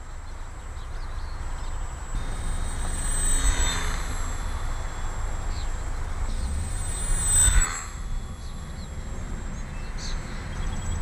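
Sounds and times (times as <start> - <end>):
model plane motor whining: 1.9 - 11.0.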